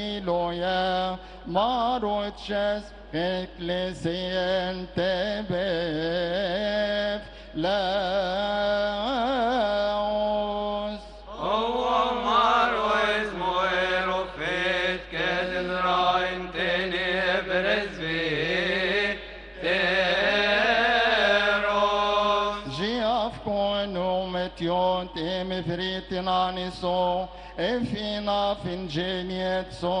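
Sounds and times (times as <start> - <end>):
man chanting in resonant church: 0.0 - 30.0.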